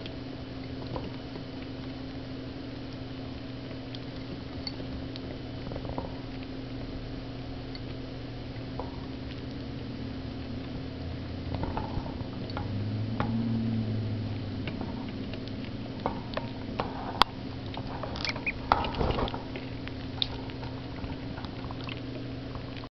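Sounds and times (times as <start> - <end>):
steady low hum: 0.0 - 22.9
ducklings pecking at dish: 7.7 - 22.9
ducklings scrabbling in bedding: 15.0 - 22.1.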